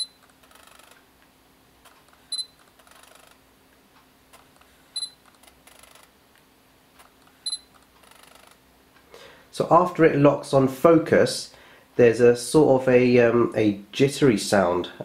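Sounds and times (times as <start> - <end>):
camera focus beep: 0.0 - 1.0, 2.3 - 3.4, 5.0 - 6.1, 7.4 - 8.6.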